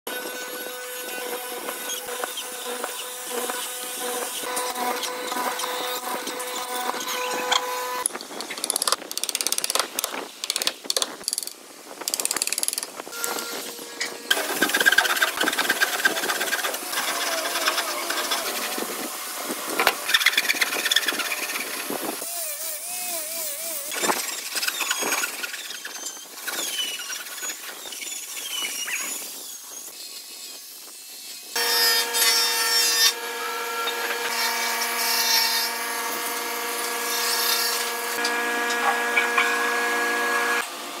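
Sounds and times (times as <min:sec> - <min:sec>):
hand saw cutting wood: 0:00.1 - 0:08.0, 0:13.2 - 0:27.6, 0:31.5 - 0:40.7
small power tool humming: 0:00.1 - 0:08.1, 0:13.1 - 0:25.0, 0:29.9 - 0:41.0
saw squeaking: 0:00.2 - 0:08.8, 0:13.1 - 0:30.7.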